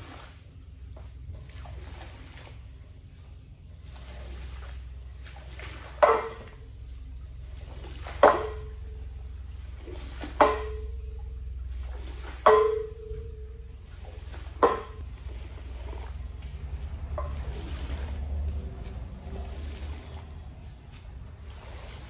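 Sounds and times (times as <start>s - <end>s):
squeegee slapping wet rug: 0.0s - 22.0s
steady low hum: 0.0s - 22.0s.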